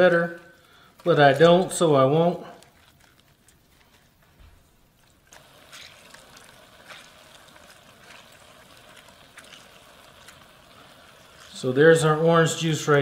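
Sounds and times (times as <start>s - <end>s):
juice trickling through a strainer: 0.0s - 13.0s
drips: 5.3s - 13.0s.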